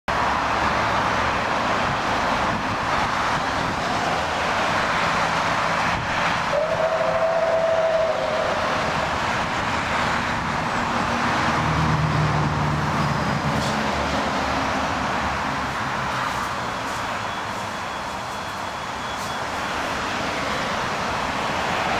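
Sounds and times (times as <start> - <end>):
road traffic passing: 0.1 - 21.9
steam locomotive approaching: 1.6 - 21.9
steam whistle: 6.5 - 8.7.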